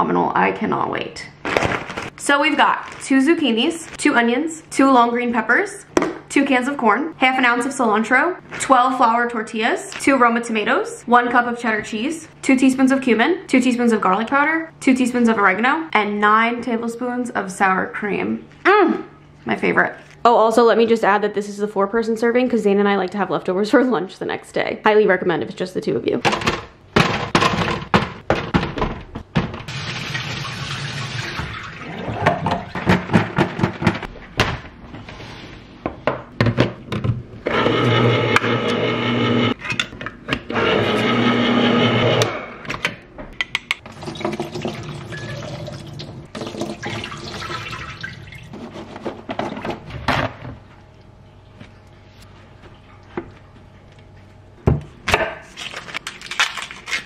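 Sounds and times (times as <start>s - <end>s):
tap water running in sink: 29.7s - 32.7s, 43.8s - 48.5s
electric can opener motor: 37.4s - 39.6s, 40.4s - 42.6s.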